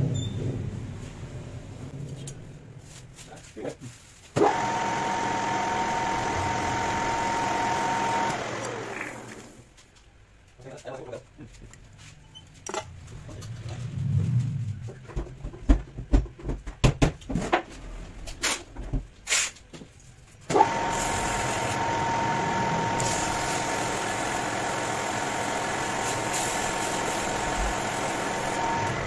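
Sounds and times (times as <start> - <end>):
lathe motor whine: 4.4 - 9.6, 20.5 - 29.0.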